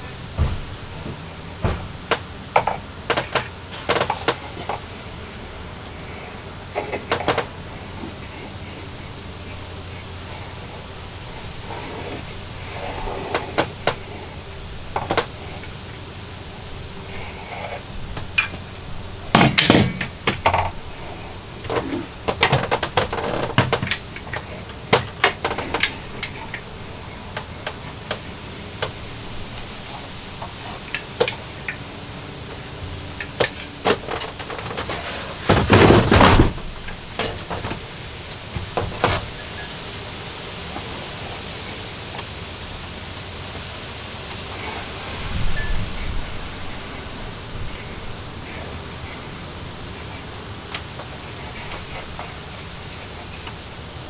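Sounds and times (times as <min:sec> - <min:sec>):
hand tools clattering: 0:00.0 - 0:39.8.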